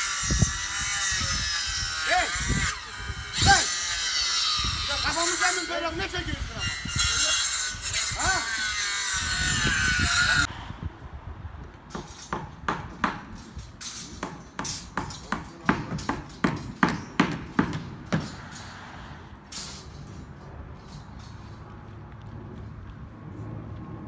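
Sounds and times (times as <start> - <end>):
hammer striking metal: 11.9 - 18.8.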